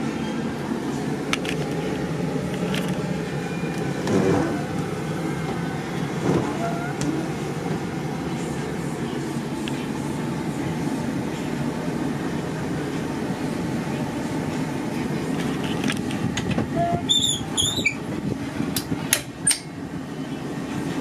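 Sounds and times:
low rumble inside a van: 0.0s - 21.0s
short high squeaks: 16.8s - 18.0s.

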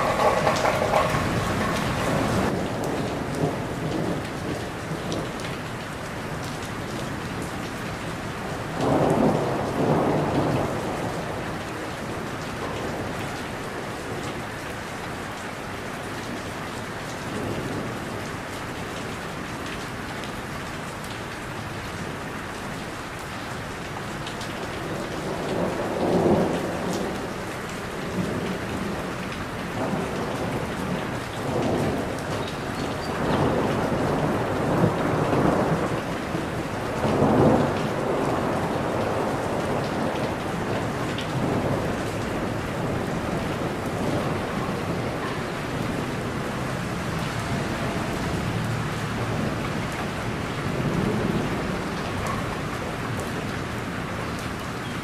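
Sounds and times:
low thunder rumbles: 0.0s - 5.3s, 8.6s - 13.2s, 29.8s - 53.8s
rain falling on leaves: 0.0s - 55.0s.

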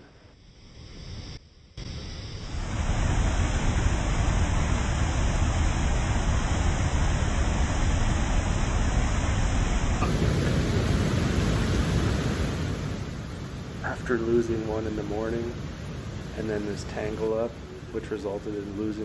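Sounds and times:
river water rushing over rapids: 10.0s - 19.0s.

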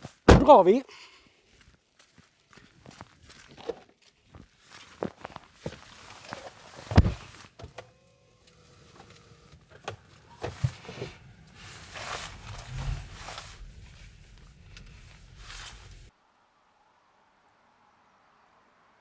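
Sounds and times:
tyres crunching over dirt: 1.4s - 16.1s
car door shutting: 6.9s - 7.9s.

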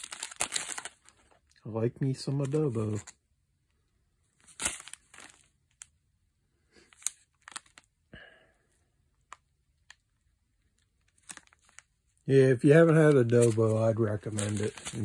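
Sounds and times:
plastic packets crinkling: 0.0s - 1.6s, 4.4s - 5.9s, 6.8s - 7.9s, 9.2s - 15.0s.

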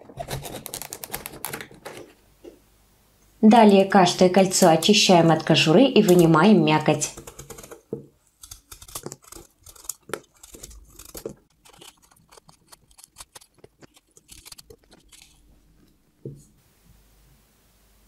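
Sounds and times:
knife cutting zucchini: 7.0s - 15.4s.

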